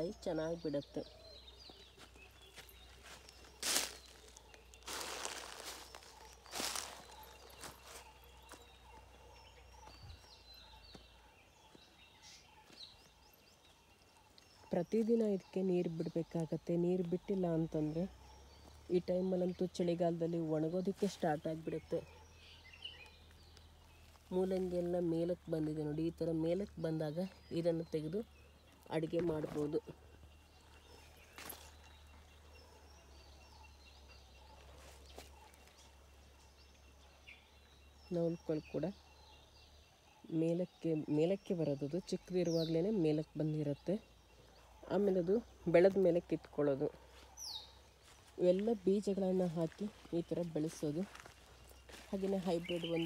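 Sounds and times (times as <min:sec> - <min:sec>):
faint bird chirps: 0:00.0 - 0:53.0
faint high bird calls: 0:00.8 - 0:14.8.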